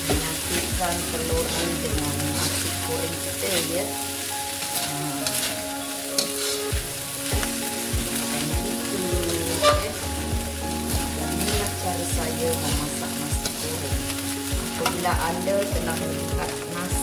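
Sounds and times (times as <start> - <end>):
rice sizzling in a wok: 0.0 - 17.0
metal spatula scraping pan: 4.8 - 6.7, 9.5 - 10.1.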